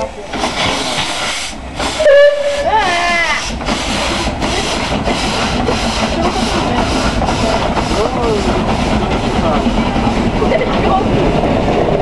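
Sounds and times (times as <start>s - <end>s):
steam locomotive chuffing: 0.0s - 12.0s
hiss of escaping steam: 0.3s - 9.4s
steam whistle blast: 2.0s - 3.4s.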